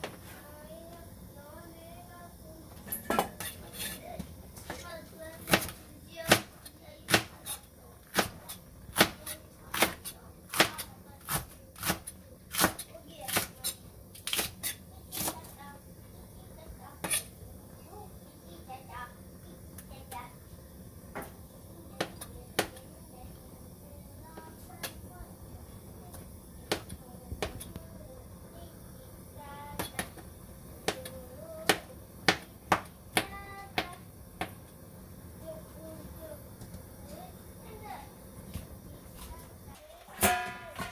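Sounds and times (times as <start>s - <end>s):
knife chopping on cutting board: 9.0s - 13.5s.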